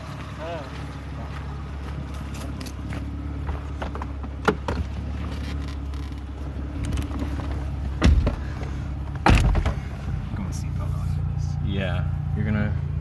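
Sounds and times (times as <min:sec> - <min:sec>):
car door shutting: 0:03.4 - 0:10.0
car door knocks: 0:08.0 - 0:08.4, 0:09.2 - 0:09.8
loud thump: 0:08.0 - 0:08.4, 0:09.2 - 0:09.8.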